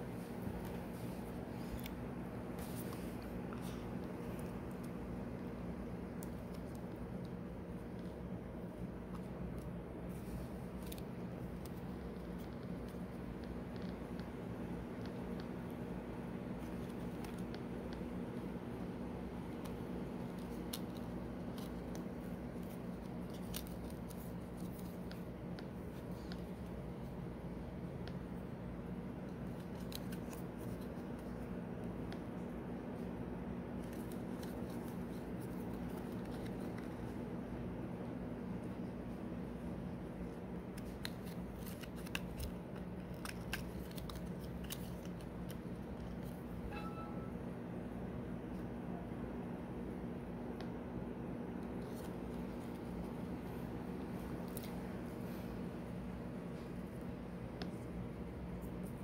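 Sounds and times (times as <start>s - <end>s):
steady low hum: 0.0s - 59.0s
paper tags clicking: 40.7s - 46.4s.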